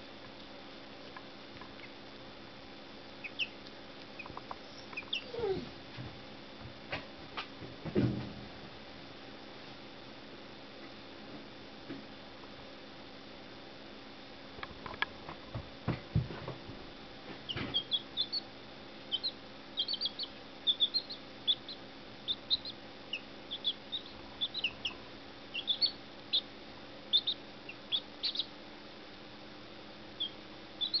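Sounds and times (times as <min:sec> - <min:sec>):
chicks peeping: 0:01.1 - 0:02.0, 0:03.2 - 0:05.7, 0:17.3 - 0:28.7, 0:30.1 - 0:31.0.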